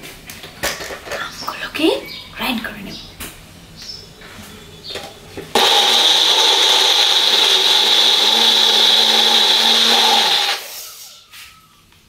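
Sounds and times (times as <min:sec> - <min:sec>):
blender motor whining: 0:05.5 - 0:11.1.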